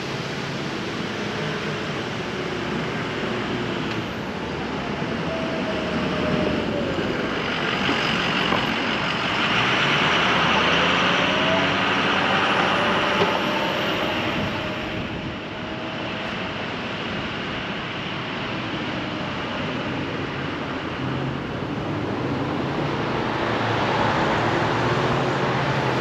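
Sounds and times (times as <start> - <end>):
vehicle driving past: 5.6 - 16.9.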